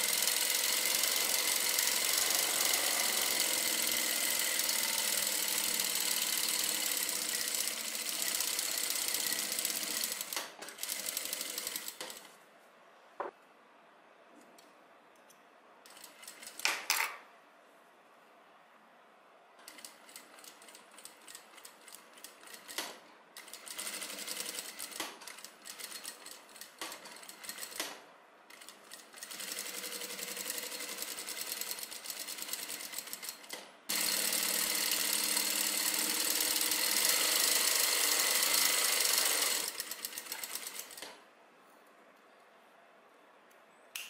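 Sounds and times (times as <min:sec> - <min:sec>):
sewing machine stitching: 0:00.0 - 0:12.3, 0:19.7 - 0:41.1.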